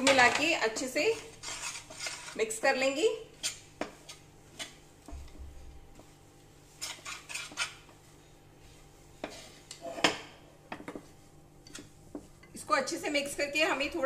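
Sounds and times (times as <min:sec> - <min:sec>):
spoon scraping and knocking a pan: 0:00.0 - 0:02.6, 0:06.7 - 0:08.0, 0:09.2 - 0:12.6.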